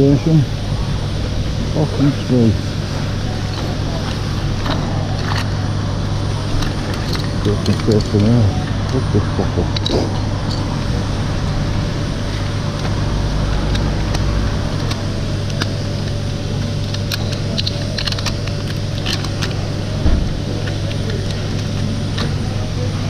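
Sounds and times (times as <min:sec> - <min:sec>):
engine idling hum: 0:00.0 - 0:23.0
tools clicking and rustling: 0:03.4 - 0:05.6, 0:06.5 - 0:09.0, 0:09.7 - 0:10.8, 0:13.6 - 0:22.6.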